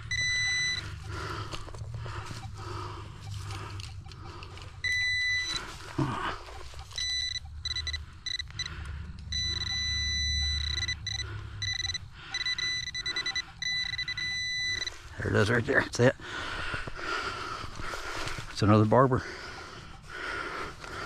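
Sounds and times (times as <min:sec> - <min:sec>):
metal detector pinpointer beeping: 0:00.0 - 0:15.6.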